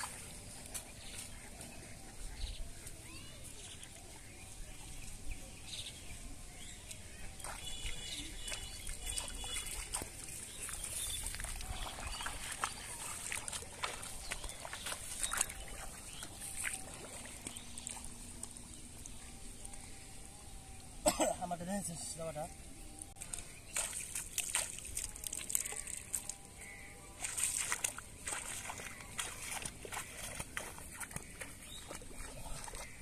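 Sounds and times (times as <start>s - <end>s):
wet plants rustling: 0.0s - 21.0s, 22.5s - 33.0s
shallow water sloshing and splashing: 6.6s - 19.3s, 23.2s - 33.0s.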